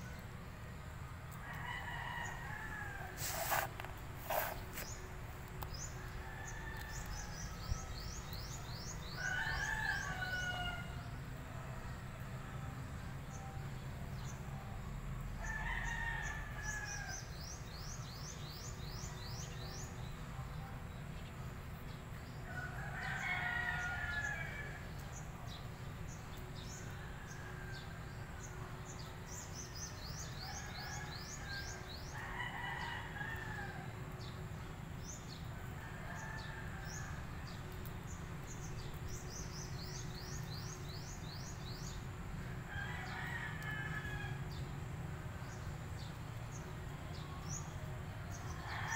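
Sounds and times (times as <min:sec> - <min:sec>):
rooster crowing: 0:42.7 - 0:44.5.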